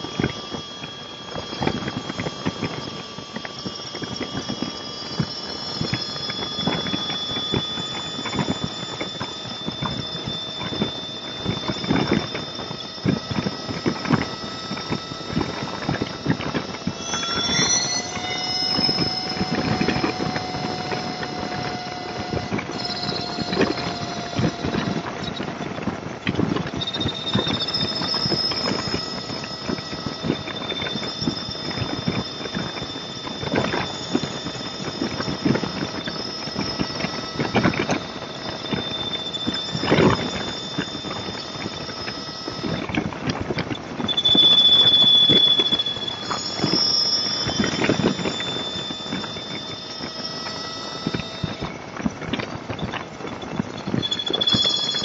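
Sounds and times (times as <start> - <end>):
motorcycle engine whine: 0.0 - 55.0.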